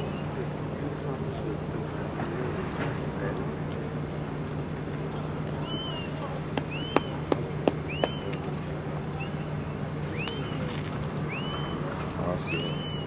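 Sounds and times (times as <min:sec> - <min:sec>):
city background hum: 0:00.0 - 0:13.0
sharp clicks: 0:04.4 - 0:05.4
high rising chirp: 0:04.4 - 0:07.2.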